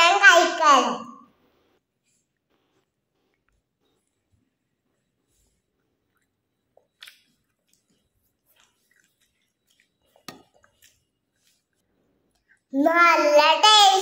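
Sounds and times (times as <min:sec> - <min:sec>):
child chewing: 0:01.9 - 0:12.7.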